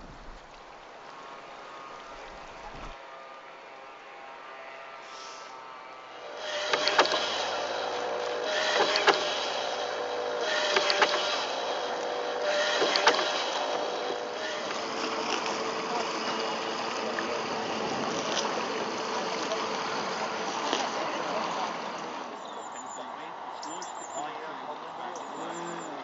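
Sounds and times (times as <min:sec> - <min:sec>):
oar splash: 0:00.0 - 0:03.0.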